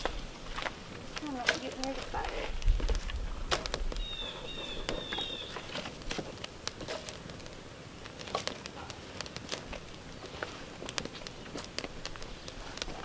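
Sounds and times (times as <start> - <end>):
campfire crackling: 0.0 - 13.0
stick poking fire: 0.0 - 13.0
bird singing whistled notes: 4.0 - 5.7.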